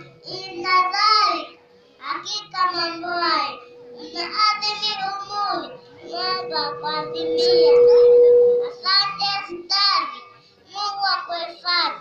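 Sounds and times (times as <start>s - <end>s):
boy preaching into microphone: 0.0s - 12.0s
steady single tone: 1.3s - 9.0s.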